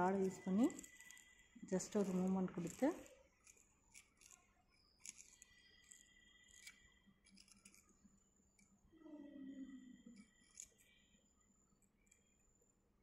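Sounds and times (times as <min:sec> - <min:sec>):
metal rod clicks and scrapes: 0:00.2 - 0:04.4, 0:05.0 - 0:07.9.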